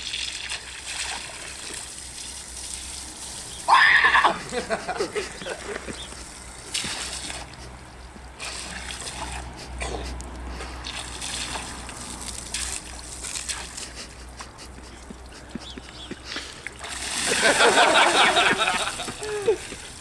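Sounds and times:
small water splashes: 0.0 - 3.8, 8.4 - 9.6, 10.8 - 13.9, 16.6 - 20.0
hose spraying into water: 0.0 - 5.0, 6.2 - 7.6, 8.4 - 9.5, 10.8 - 14.2, 16.4 - 20.0.

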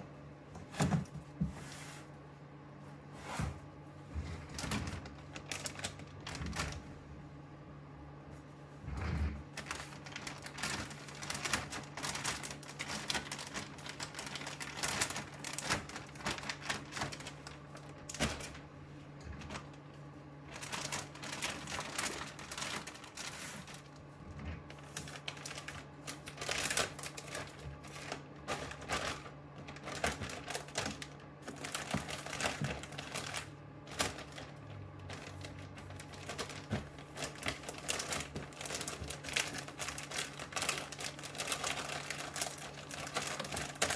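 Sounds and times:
plastic bag crinkling: 4.2 - 7.0, 9.0 - 43.9
grain rattling in bag: 9.6 - 18.6.

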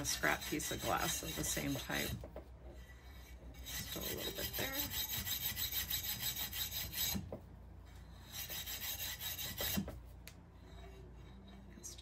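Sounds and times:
steel scrubber rasping on glass: 0.0 - 12.0.

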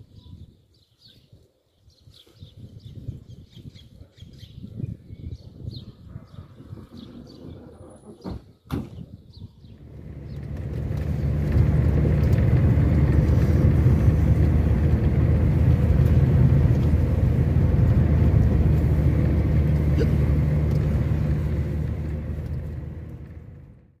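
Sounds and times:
car engine and road noise: 9.8 - 24.0.

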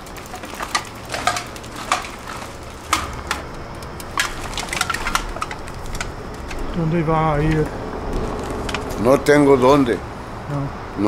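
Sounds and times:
plastic bags crinkling: 0.0 - 9.4.

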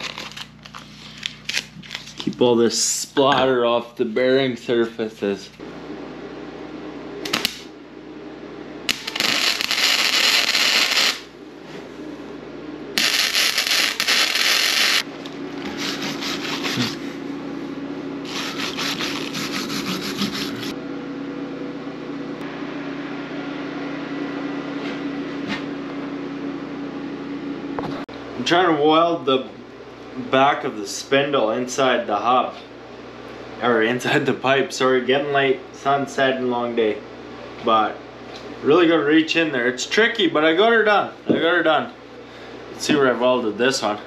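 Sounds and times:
steady low hum: 0.0 - 44.0
welder crackling hiss: 8.9 - 11.3, 13.0 - 15.0
wire brush scrubbing metal: 18.2 - 20.7.

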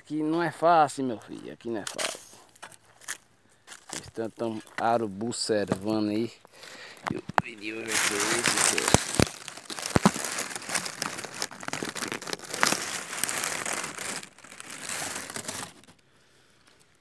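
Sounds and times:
phone handling rustling: 5.7 - 14.2.

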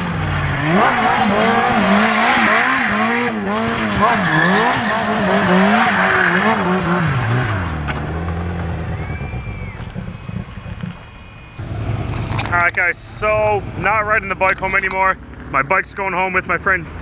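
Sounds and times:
motorbike engine revving: 0.0 - 15.6
tyre squeal: 3.9 - 11.6.

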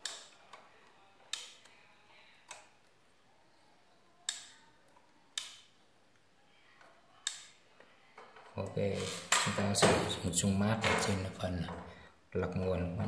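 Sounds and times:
metal tool clicking on circuit board: 0.0 - 0.3, 4.3 - 4.5.

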